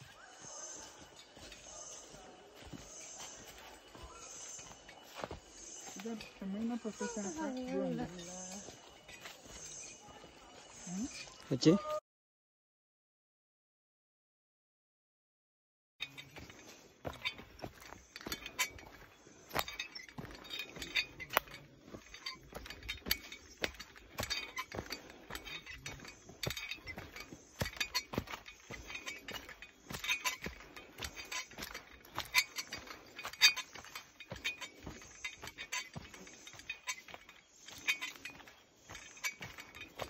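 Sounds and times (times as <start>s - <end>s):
footsteps crunching dry leaves: 0.0s - 10.9s.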